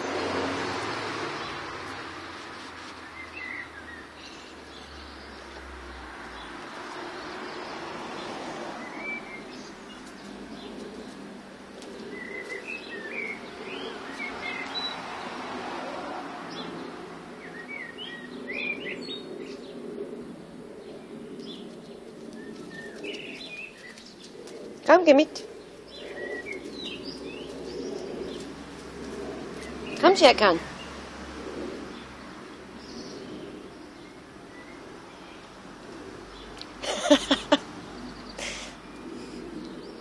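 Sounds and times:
small birds chirping: 0.0s - 40.0s
background hum: 8.2s - 40.0s.

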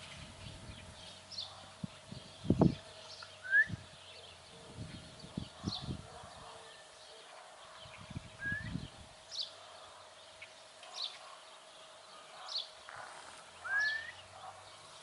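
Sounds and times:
bird chirping: 0.0s - 15.0s
rising whistled bird call: 3.4s - 3.8s, 8.4s - 8.9s, 13.6s - 14.2s.

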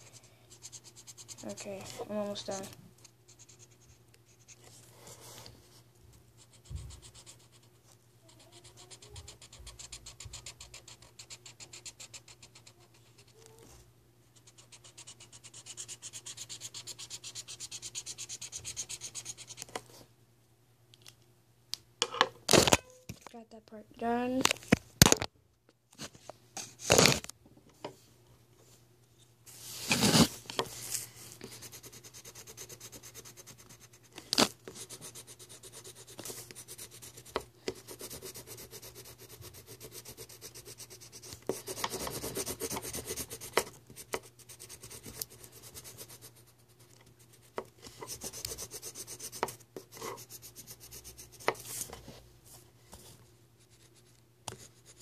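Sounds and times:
marker pen scratching: 8.3s - 13.3s, 14.4s - 19.7s, 31.4s - 46.4s, 47.4s - 51.8s.

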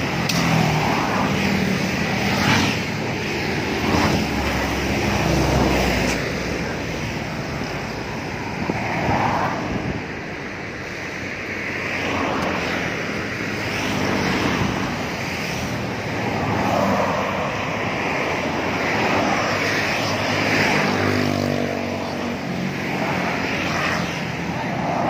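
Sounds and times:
cars passing close by: 0.0s - 25.0s.

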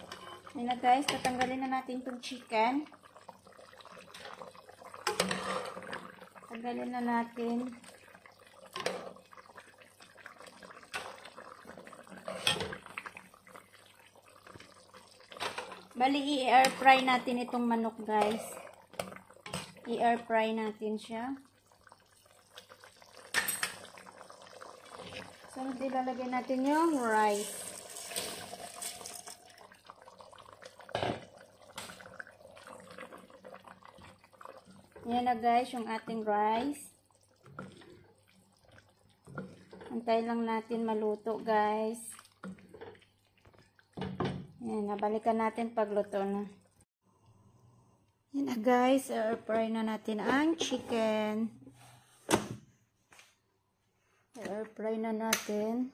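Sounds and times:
liquid drips and splashes: 37.0s - 40.0s, 42.0s - 44.5s.

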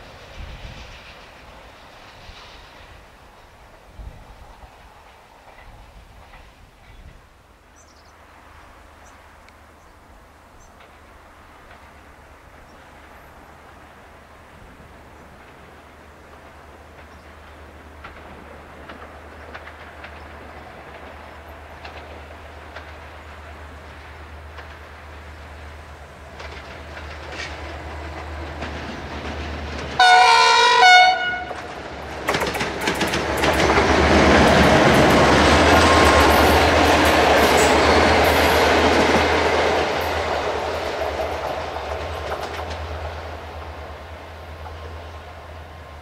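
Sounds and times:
train wheels clacking on rail joints: 0.0s - 7.4s, 10.6s - 13.9s, 14.6s - 46.0s
passenger train passing: 0.0s - 46.0s
locomotive horn blast: 30.0s - 31.7s.

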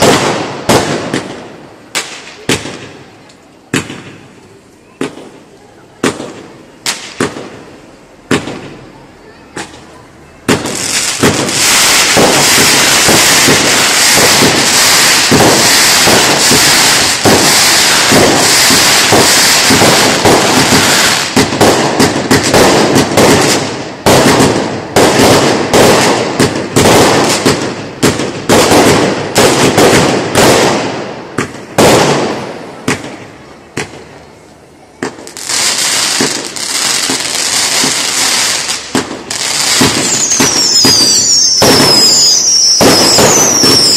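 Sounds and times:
firework bangs: 0.0s - 34.3s, 35.0s - 43.9s
fireworks crackling and hissing: 0.0s - 43.9s.

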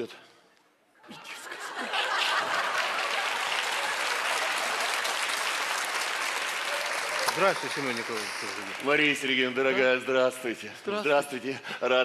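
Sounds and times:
audience applauding: 1.9s - 9.7s.

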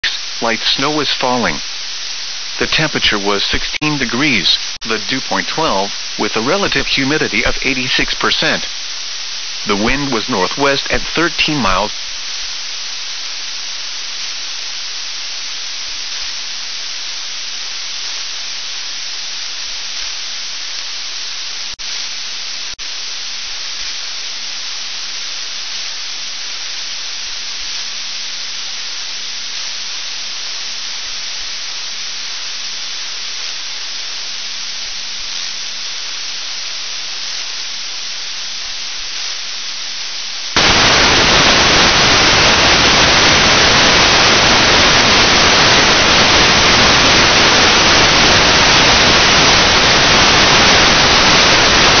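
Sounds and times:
radio receiver static hiss: 0.0s - 52.0s.

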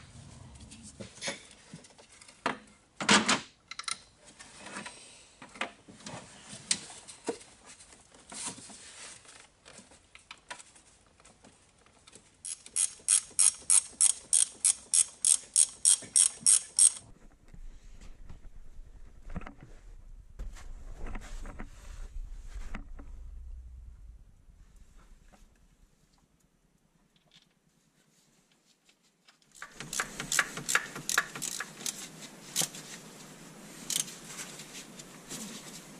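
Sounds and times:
ratchet wrench clicking: 12.4s - 17.0s, 29.6s - 32.0s, 33.9s - 34.1s.

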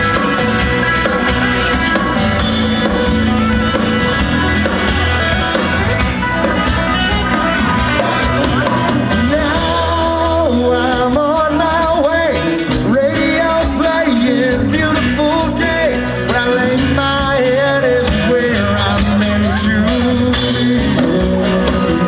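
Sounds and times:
live country band playing: 0.0s - 22.0s
person singing: 8.0s - 22.0s.

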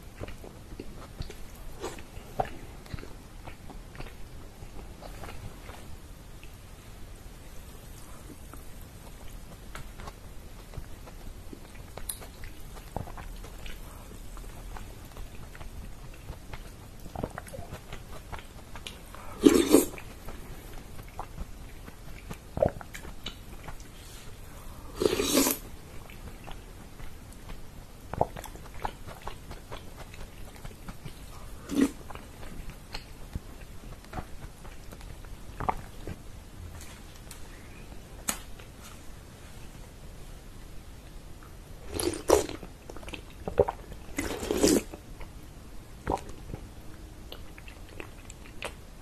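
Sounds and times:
chewing and slurping: 8.0s - 36.2s, 41.9s - 45.4s.

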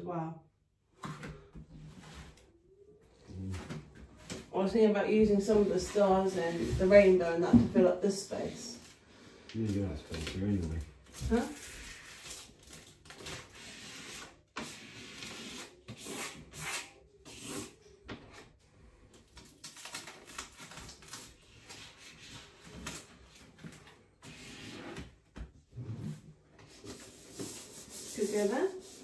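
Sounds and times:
hands rubbing stickers on wall: 26.6s - 29.0s.

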